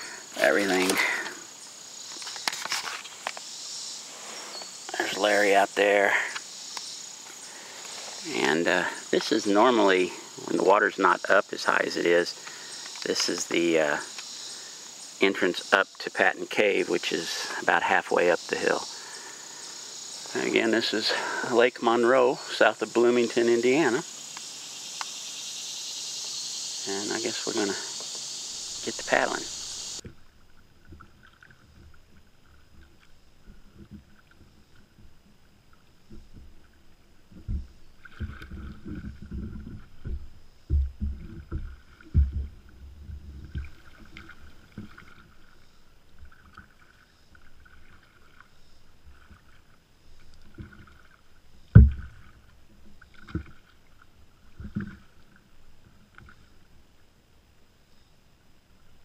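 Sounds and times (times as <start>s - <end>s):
paddle splashes and drips: 11.6s - 15.2s, 26.2s - 57.6s
knocks and thumps on hull: 37.3s - 45.2s, 51.7s - 52.5s.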